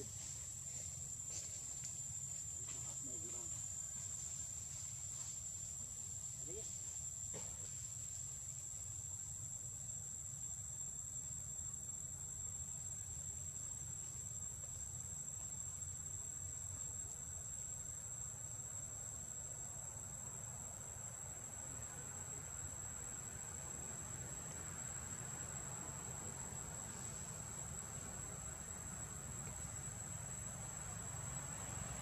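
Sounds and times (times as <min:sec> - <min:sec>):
insects chirring: 0:00.0 - 0:32.0.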